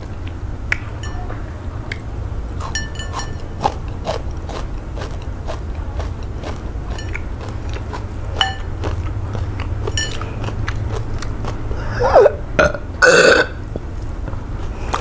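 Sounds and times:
wet eating clicks and smacks: 0:00.0 - 0:01.3, 0:01.9 - 0:11.8, 0:13.7 - 0:15.0
loud burp: 0:11.8 - 0:13.6.

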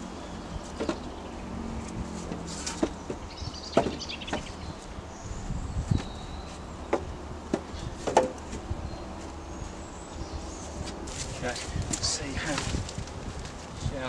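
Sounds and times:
wooden poles knocking: 0:00.7 - 0:01.1, 0:02.3 - 0:04.6, 0:06.9 - 0:08.7.

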